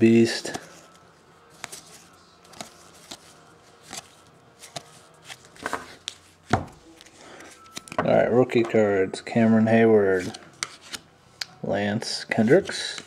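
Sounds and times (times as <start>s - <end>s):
cards flicking: 2.4s - 6.2s.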